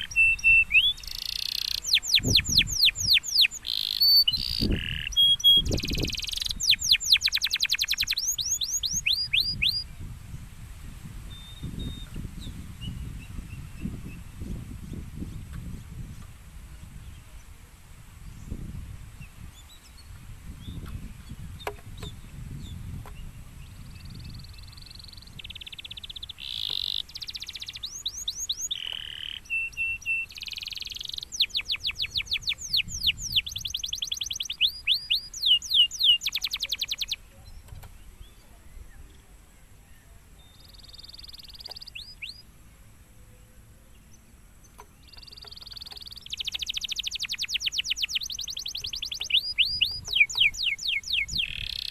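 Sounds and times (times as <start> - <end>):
canary singing trills: 0.0 - 10.0, 18.3 - 42.5, 43.9 - 51.9.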